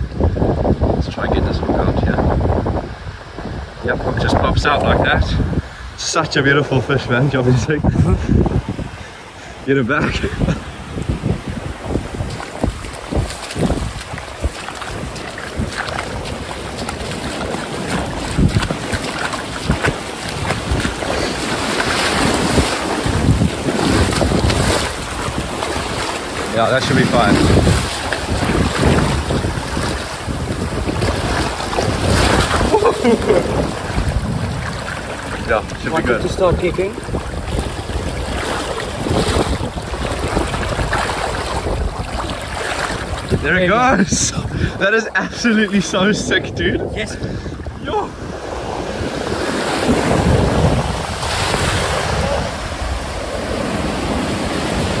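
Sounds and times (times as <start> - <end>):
surf waves breaking on sand: 0.0 - 55.0
wind buffeting microphone: 0.0 - 55.0
water sloshing around hands: 12.0 - 43.4.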